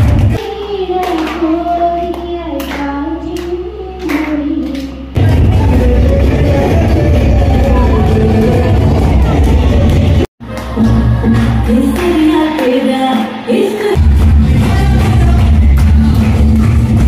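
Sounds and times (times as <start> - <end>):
bass-heavy music: 0.0 - 12.8, 14.0 - 17.0
girl singing into a microphone: 0.3 - 5.1.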